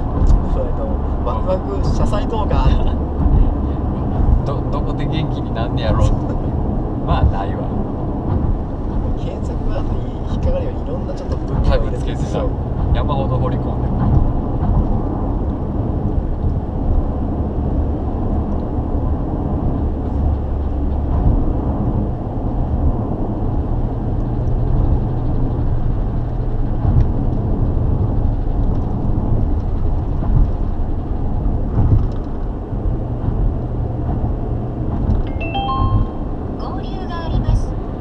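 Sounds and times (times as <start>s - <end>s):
road and engine noise inside car: 0.0s - 38.0s.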